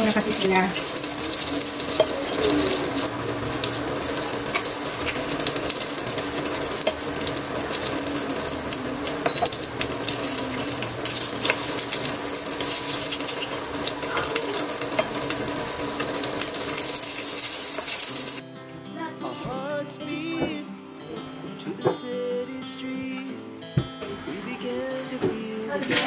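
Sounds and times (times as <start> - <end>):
food sizzling in oil: 0.0 - 18.4.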